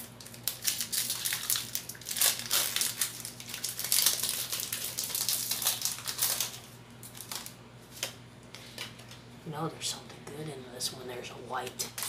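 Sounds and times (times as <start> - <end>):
foil wrapper crinkling: 0.0 - 9.2.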